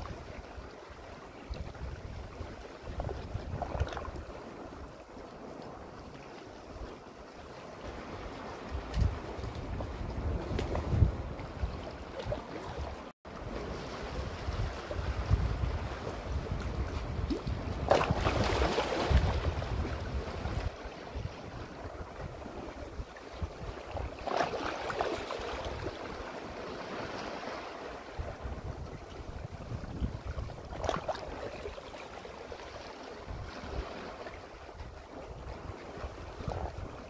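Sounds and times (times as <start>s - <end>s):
sea waves splashing over rocks: 7.7s - 34.8s.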